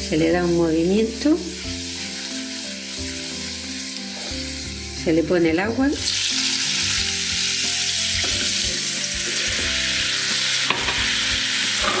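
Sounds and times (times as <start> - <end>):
oil sizzling and spitting: 0.7 - 5.0, 5.9 - 12.0.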